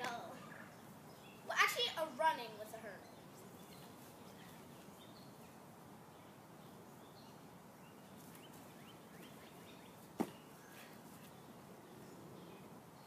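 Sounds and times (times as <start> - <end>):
small birds chirping: 0.0 - 13.0
sharp thump: 10.2 - 10.4.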